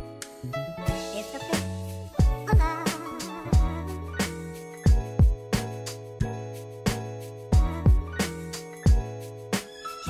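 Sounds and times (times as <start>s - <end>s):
background music with a beat: 0.0s - 10.0s
deep heavy kick drum: 2.2s - 2.8s, 3.6s - 3.9s, 4.9s - 5.6s, 7.6s - 8.2s, 8.9s - 9.1s.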